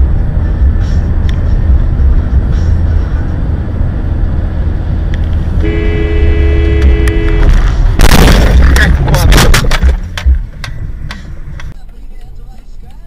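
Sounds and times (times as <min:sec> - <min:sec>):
road and engine rumble: 0:00.0 - 0:13.0
car horn two-note blast: 0:05.6 - 0:07.6.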